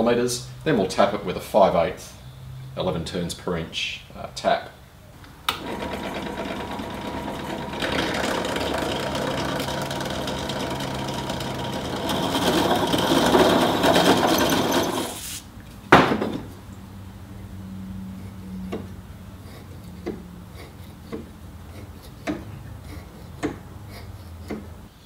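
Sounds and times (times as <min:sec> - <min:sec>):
drill press motor running: 0:05.5 - 0:15.2
drill bit cutting metal: 0:05.6 - 0:15.2.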